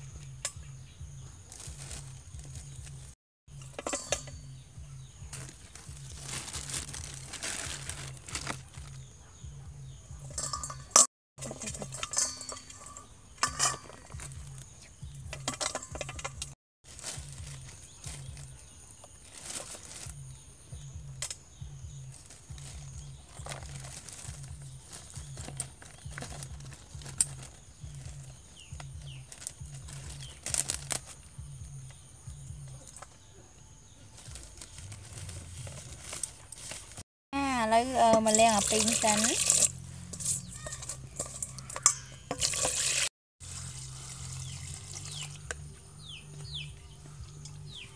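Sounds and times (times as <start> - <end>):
plastic bag rustling: 1.5 - 3.2, 5.3 - 9.1, 16.8 - 20.3, 22.1 - 31.3, 34.1 - 37.0
metal tongs clinking on steel bowl: 3.6 - 4.4, 10.2 - 14.3, 15.3 - 16.5, 38.1 - 43.0.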